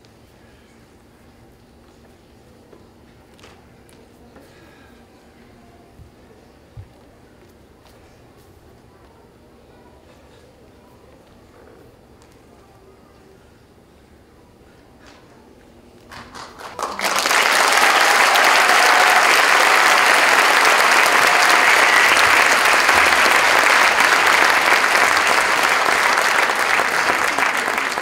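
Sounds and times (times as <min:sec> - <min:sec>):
audience applauding: 0:16.1 - 0:28.0.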